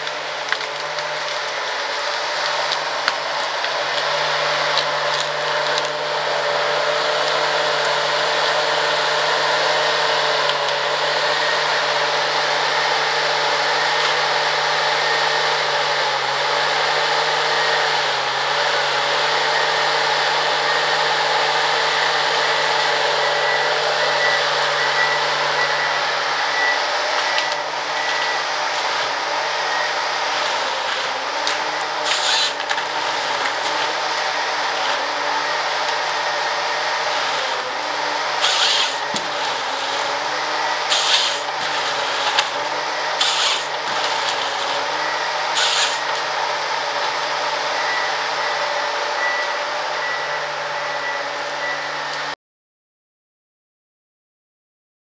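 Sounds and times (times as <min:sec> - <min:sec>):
forest harvester diesel engine: 0:00.0 - 0:52.4
hydraulics whining: 0:00.0 - 0:52.4
short crackle: 0:30.9 - 0:33.9, 0:40.9 - 0:42.5, 0:43.2 - 0:44.7.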